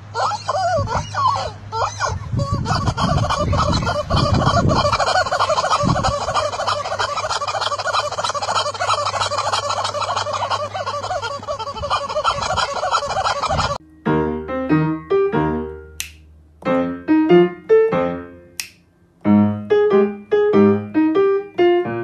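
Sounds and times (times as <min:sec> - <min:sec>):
rubber squeaky toy squawking: 0:00.1 - 0:13.8.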